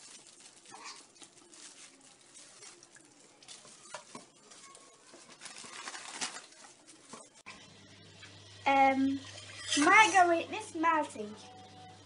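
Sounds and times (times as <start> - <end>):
plastic rustling: 0.0 - 7.4.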